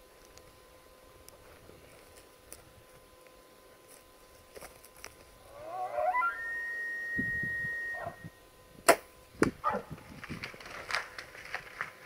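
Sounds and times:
elk bugling whistle: 5.5s - 8.4s.

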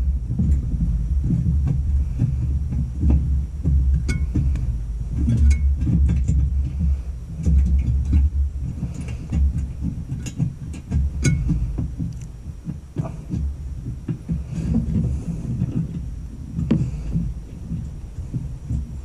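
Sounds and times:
low rumble: 0.0s - 19.0s
small metallic clicks and taps: 7.4s - 13.4s.

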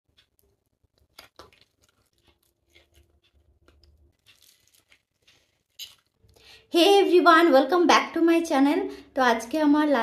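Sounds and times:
faint chewing mouth clicks: 0.1s - 6.7s.

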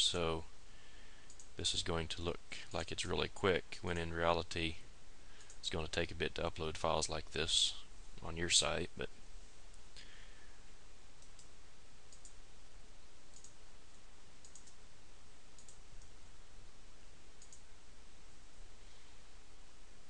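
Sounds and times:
steady background hiss: 0.0s - 20.0s
computer mouse clicking: 1.3s - 1.5s, 11.2s - 11.5s, 12.1s - 12.4s, 13.3s - 13.6s, 14.4s - 14.8s, 15.6s - 16.1s, 17.4s - 17.6s.

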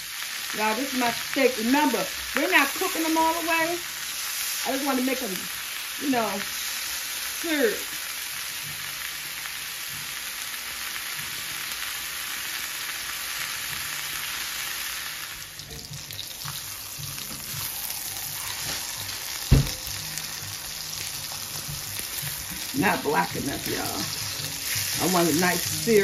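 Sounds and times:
steaks sizzling in oil: 0.0s - 26.0s
sharp knock: 19.5s - 19.8s.

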